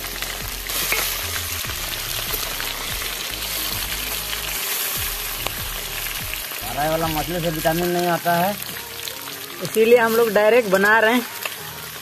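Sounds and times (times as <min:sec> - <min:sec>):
fish sizzling in a wok: 0:00.0 - 0:12.0
metal spatula stirring: 0:00.2 - 0:01.5.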